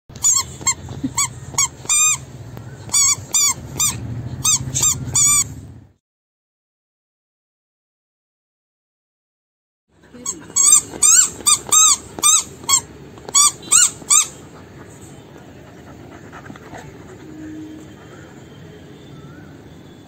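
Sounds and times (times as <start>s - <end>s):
rubber squeaky toy squeaks: 0.1s - 5.6s, 10.2s - 15.0s.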